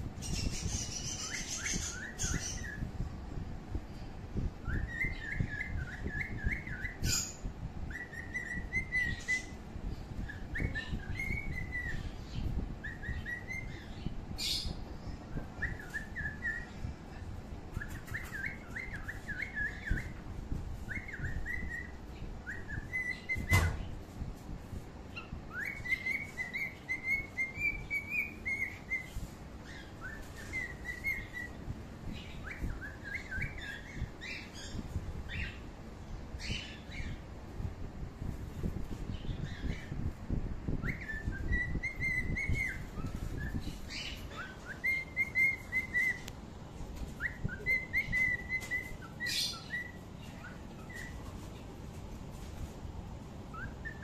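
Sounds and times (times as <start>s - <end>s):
bird chirping: 0.1s - 3.0s, 4.4s - 16.9s, 17.7s - 20.2s, 20.8s - 23.8s, 25.1s - 35.7s, 40.7s - 46.3s, 47.0s - 51.5s, 53.4s - 54.0s.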